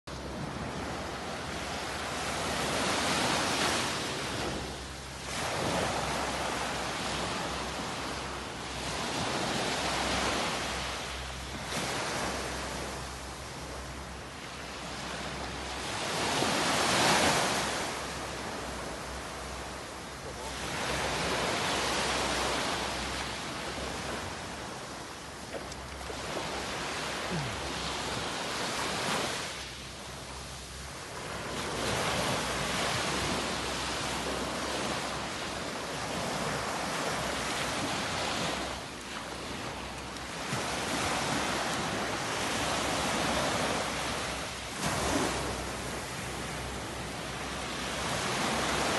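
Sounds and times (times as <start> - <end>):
waves breaking on sand: 0.1 - 48.9.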